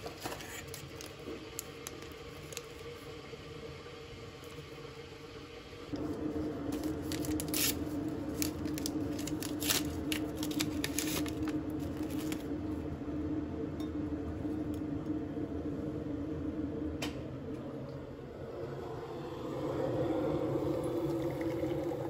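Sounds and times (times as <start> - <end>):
paper crinkling and tearing: 0.0 - 2.7, 6.7 - 12.5
low appliance hum: 0.0 - 22.0.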